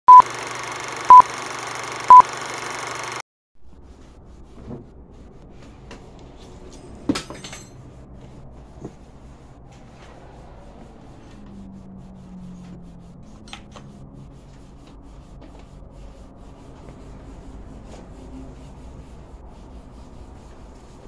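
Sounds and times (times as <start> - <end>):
short beeps: 2.1 - 2.3.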